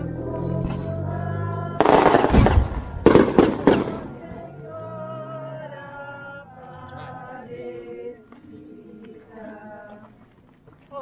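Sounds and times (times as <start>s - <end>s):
group singing religious song: 0.0s - 10.4s
firecrackers crackling and banging: 1.8s - 4.1s.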